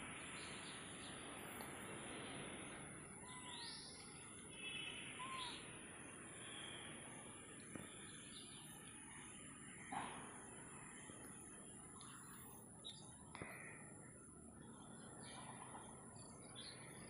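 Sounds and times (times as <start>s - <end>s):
background hiss: 0.0s - 17.0s
high insect drone: 0.0s - 17.0s
bird chirps and trill: 3.2s - 5.8s.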